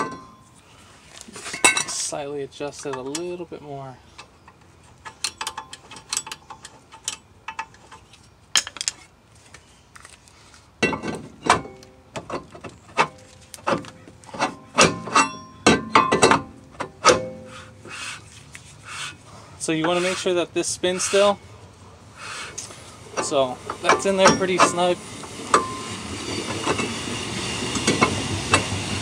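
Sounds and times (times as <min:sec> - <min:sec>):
ringing metallic knocks of brake rotor: 0:00.0 - 0:00.5, 0:14.4 - 0:17.5.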